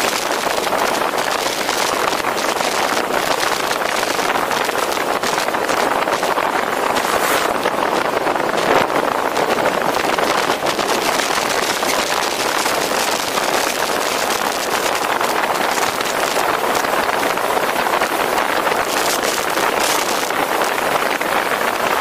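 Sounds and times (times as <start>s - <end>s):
car road noise: 0.0s - 17.8s
wind rushing: 4.2s - 11.0s.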